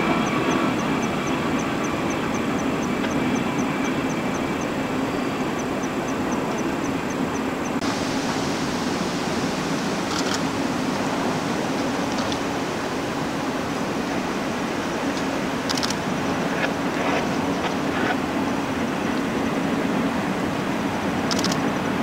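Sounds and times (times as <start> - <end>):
freight train rolling over bridge: 0.0 - 22.0
faint high ticks: 0.2 - 4.8, 5.5 - 7.8, 21.3 - 21.6.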